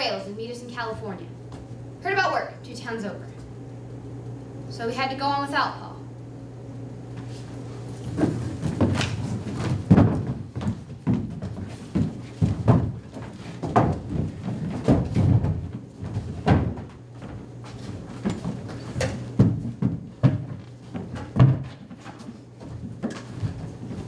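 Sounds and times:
wooden props knocking on stage: 0:08.2 - 0:16.9.

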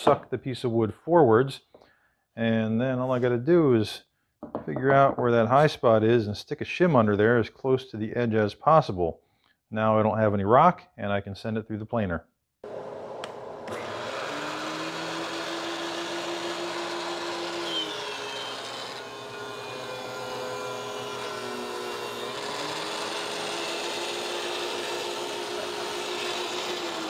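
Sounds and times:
thickness planer motor humming: 0:12.6 - 0:27.0
board squealing in planer: 0:17.3 - 0:24.2.

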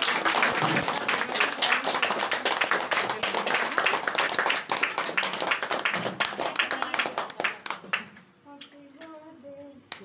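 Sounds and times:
people clapping: 0:00.0 - 0:08.4.

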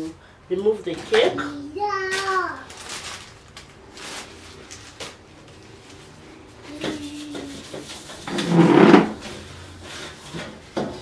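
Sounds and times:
metal bakeware scraping clatter: 0:08.0 - 0:11.0.

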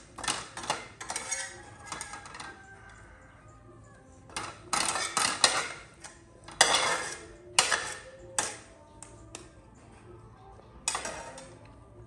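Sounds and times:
metal spatula scraping a wok: 0:00.1 - 0:02.5, 0:04.3 - 0:08.6, 0:10.8 - 0:11.6.

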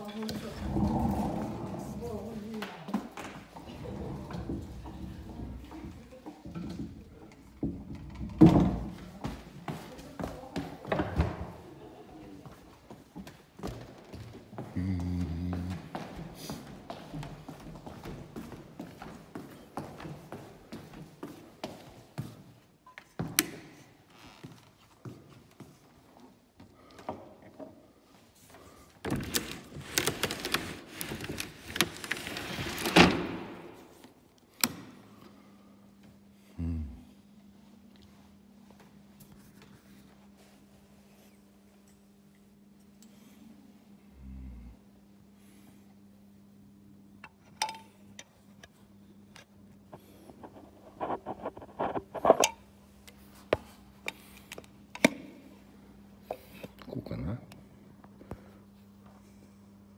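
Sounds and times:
steady low hum: 0:27.8 - 0:59.9.

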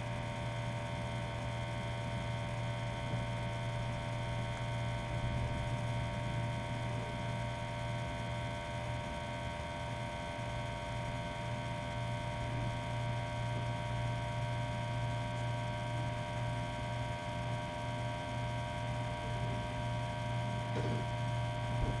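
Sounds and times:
electrical hum: 0:11.0 - 0:22.0.

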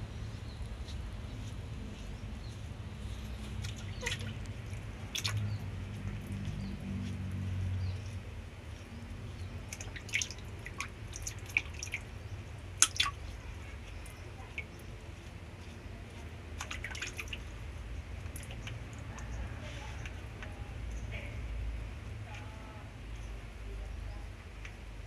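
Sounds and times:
low steady hum: 0:00.0 - 0:25.0
water dripping: 0:03.6 - 0:21.2.

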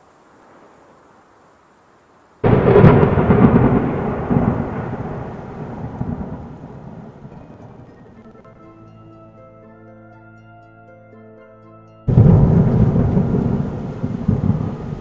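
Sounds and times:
faint hiss: 0:00.0 - 0:08.4, 0:12.1 - 0:15.0
thunderclap rumbling: 0:02.4 - 0:08.7, 0:12.1 - 0:15.0.

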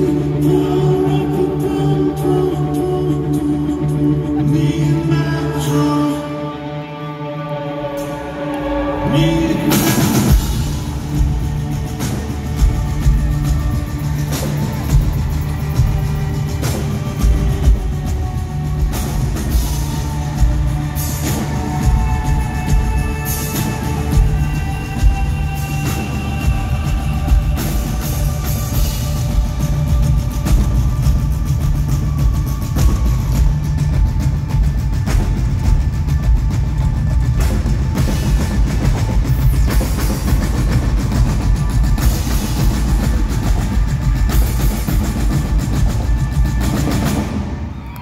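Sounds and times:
live band playing: 0:00.0 - 0:48.0
marching bass and snare drums: 0:09.5 - 0:47.7.

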